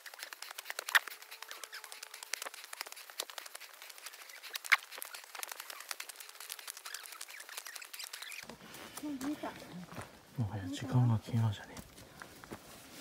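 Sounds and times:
footsteps crunching on leaves: 8.2s - 13.0s.

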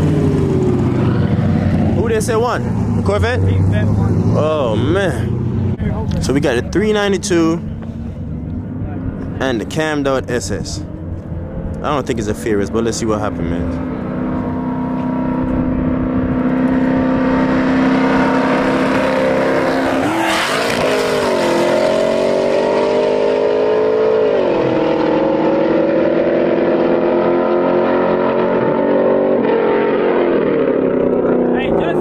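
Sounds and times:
car engines at full throttle: 0.0s - 32.0s.

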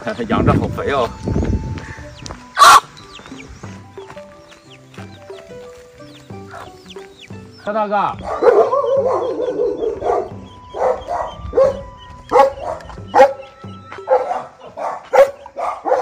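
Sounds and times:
dog barking: 8.2s - 13.4s, 14.1s - 16.0s.

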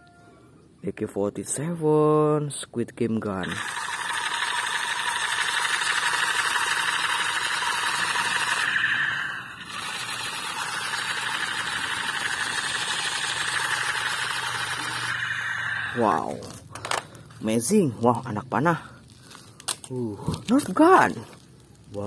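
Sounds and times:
toy gun machine-gun sound effect: 3.4s - 17.0s.

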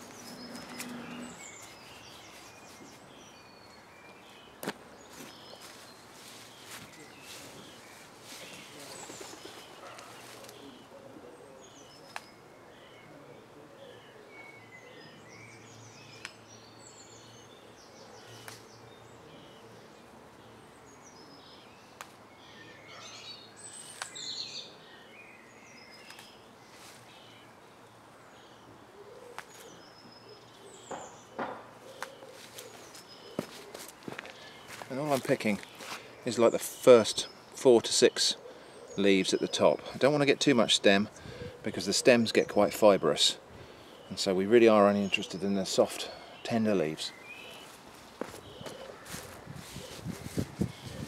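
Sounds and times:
rustling of leafy plants: 0.0s - 11.0s, 25.9s - 27.5s, 31.8s - 38.4s, 39.2s - 51.0s
distant traffic hum: 0.0s - 12.7s, 26.0s - 51.0s
songbirds chirping and singing: 0.0s - 51.0s.

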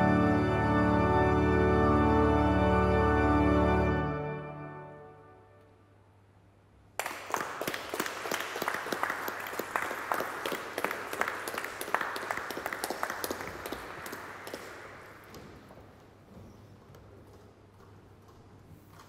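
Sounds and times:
audience applauding: 7.0s - 15.6s.

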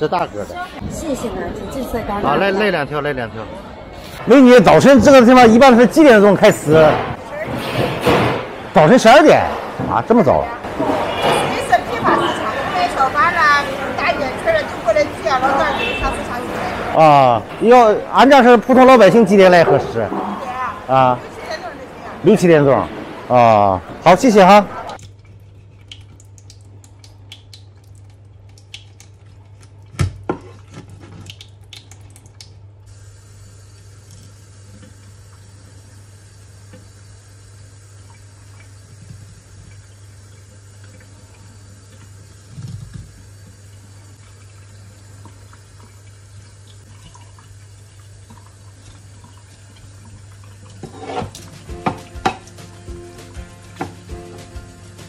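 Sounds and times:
music: 51.4s - 55.0s
sharp knocks: 51.5s - 54.0s
knife chopping knock: 51.7s - 52.5s.

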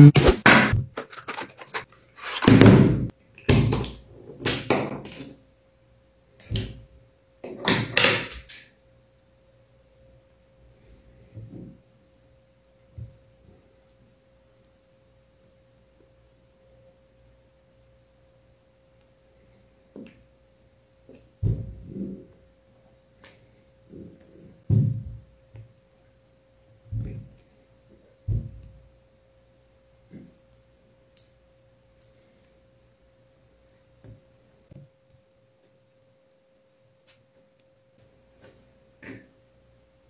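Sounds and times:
faint steady hum: 0.0s - 40.0s
carton and tube rustling: 0.8s - 2.8s.

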